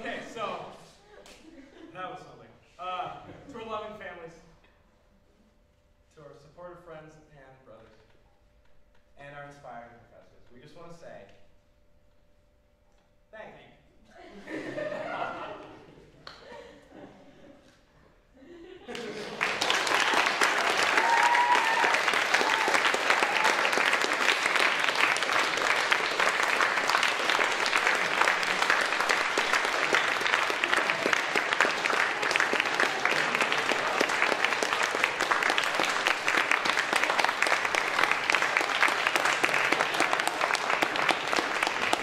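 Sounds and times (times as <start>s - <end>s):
audience applauding: 18.9s - 42.0s.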